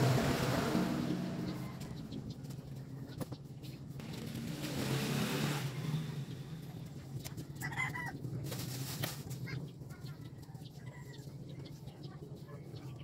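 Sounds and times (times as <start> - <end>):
passing vehicle engine hum: 0.0 - 3.0, 3.9 - 7.2.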